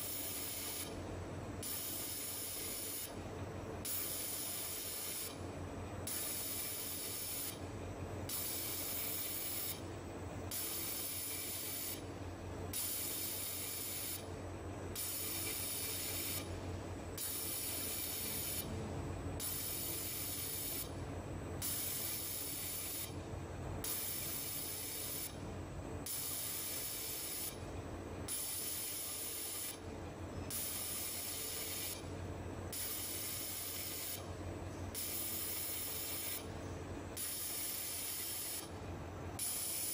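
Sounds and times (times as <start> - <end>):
laser welder hissing bursts: 0.0 - 1.0, 1.6 - 3.1, 3.9 - 5.4, 6.1 - 7.6, 8.3 - 9.8, 10.5 - 12.0, 12.8 - 14.2, 15.0 - 16.5, 17.2 - 18.7, 19.4 - 20.9, 21.6 - 23.1, 23.9 - 25.3, 26.1 - 27.6, 28.3 - 29.8, 30.5 - 32.0, 32.8 - 34.2, 35.0 - 36.4, 37.2 - 38.7, 39.4 - 39.9
low machine hum: 16.4 - 19.4.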